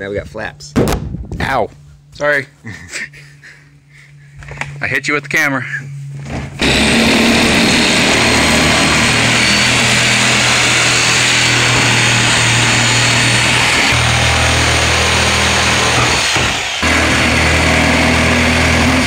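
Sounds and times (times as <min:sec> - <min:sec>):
reciprocating saw cutting plastic: 0:06.6 - 0:19.0.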